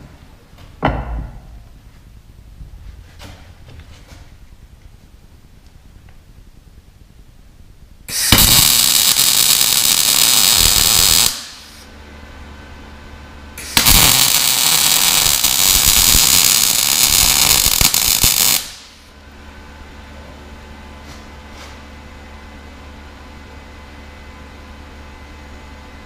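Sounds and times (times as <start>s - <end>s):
low steady hum: 0.0s - 16.1s, 18.8s - 26.0s
welding arc crackling: 8.1s - 11.9s, 13.6s - 19.1s.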